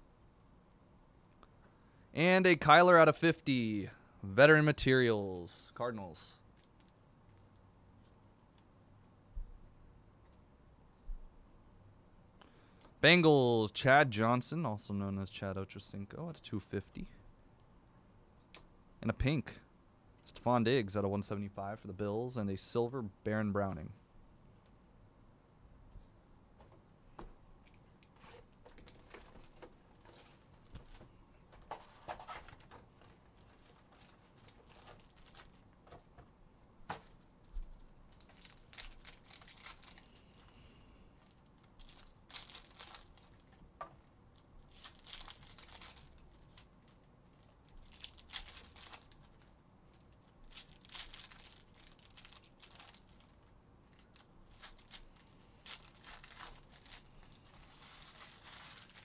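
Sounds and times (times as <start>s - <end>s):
foil wrappers tearing and crinkling: 33.4s - 35.7s, 37.8s - 40.6s, 41.2s - 59.0s.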